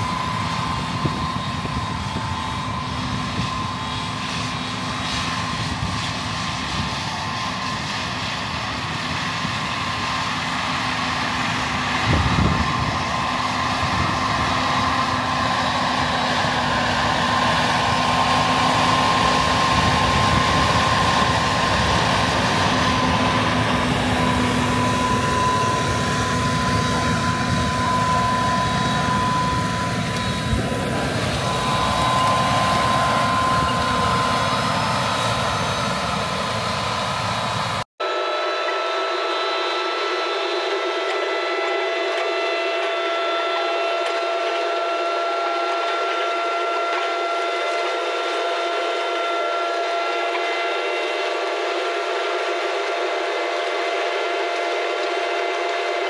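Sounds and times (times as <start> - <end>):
tractor engine running: 0.0 - 37.9
faint steady whine: 0.0 - 42.7
high multi-tone whine: 0.0 - 56.0.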